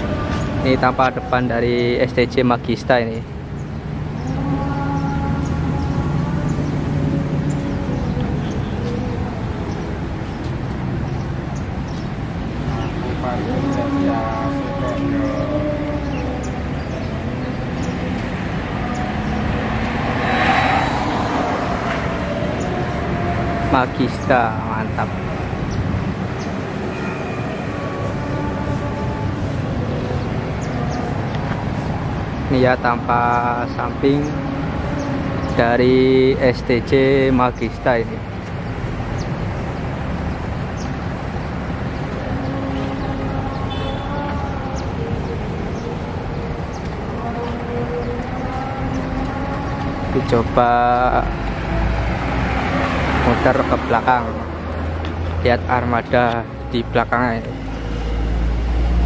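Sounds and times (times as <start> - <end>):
low rumble of traffic: 0.0 - 59.0
tyres hissing as vehicle passes: 18.3 - 37.3, 38.1 - 47.2, 51.3 - 55.7.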